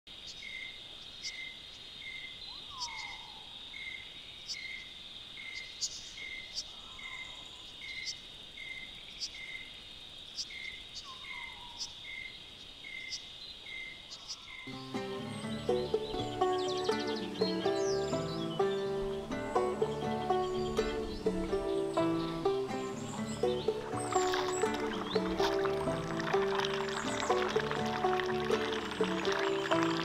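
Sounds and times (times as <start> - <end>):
crickets trilling: 0.1 - 19.3
pulsing cricket call: 23.0 - 30.0.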